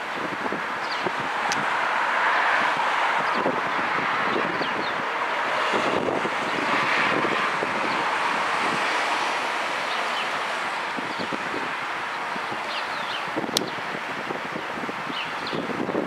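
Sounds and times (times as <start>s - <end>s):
outdoor rushing noise: 0.0s - 16.0s
wind buffeting microphone: 0.0s - 16.0s.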